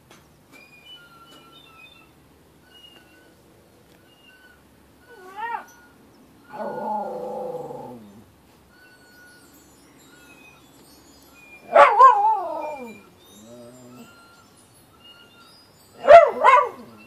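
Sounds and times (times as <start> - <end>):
faint high-pitched notes: 0.6 - 17.0
dog howling: 5.1 - 5.8, 6.5 - 8.2, 11.7 - 14.2.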